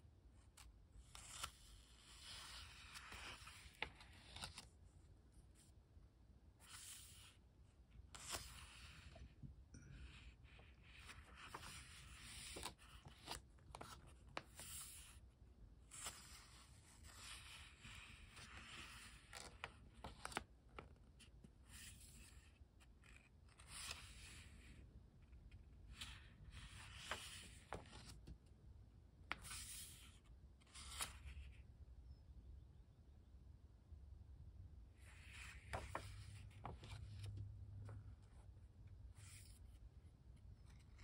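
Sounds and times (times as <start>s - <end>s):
paper pages rustling: 0.6s - 4.8s, 8.1s - 9.2s, 10.5s - 15.2s, 15.9s - 21.0s, 25.9s - 28.4s, 29.3s - 31.6s, 35.1s - 38.2s.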